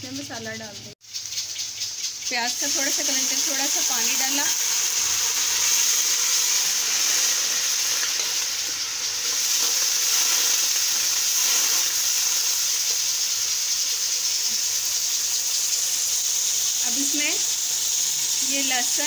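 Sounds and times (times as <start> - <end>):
onions sizzling in hot oil: 0.0 - 19.0
metal spoon stirring in wok: 1.0 - 15.3.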